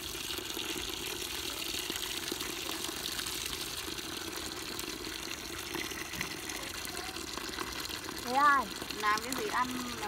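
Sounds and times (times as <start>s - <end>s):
tap water pouring onto greens: 0.0s - 10.0s.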